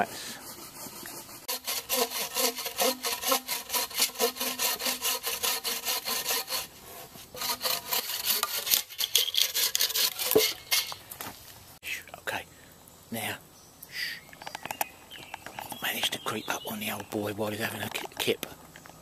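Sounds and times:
bow saw cutting wood: 0.0s - 11.0s.

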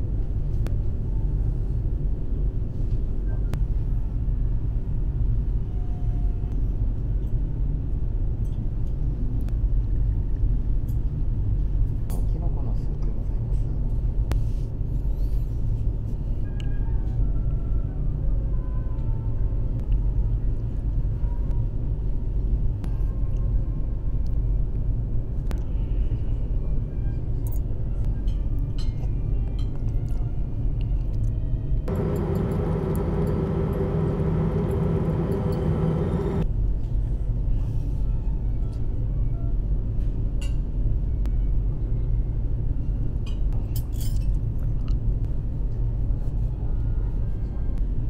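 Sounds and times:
ship engines droning: 31.9s - 36.5s.

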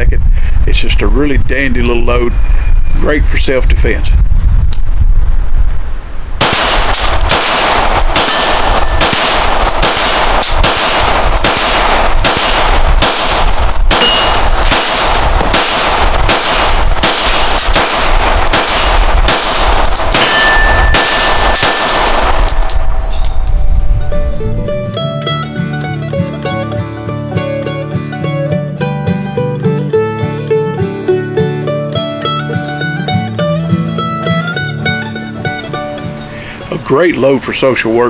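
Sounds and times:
pistol shots: 6.4s - 23.3s.

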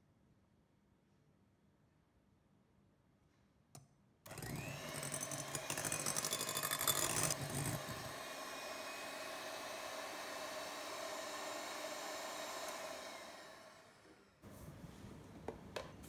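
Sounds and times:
electric hand mixer whining: 4.3s - 14.4s.

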